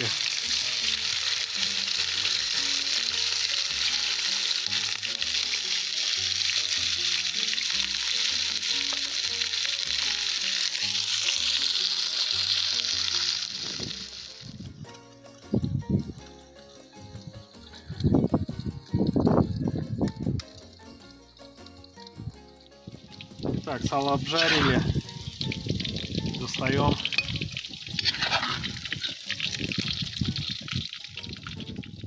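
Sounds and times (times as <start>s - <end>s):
pork fat sizzling: 0.0s - 32.0s
quiet background music: 0.0s - 32.0s
metal spatula stirring: 24.2s - 25.5s, 26.9s - 30.2s.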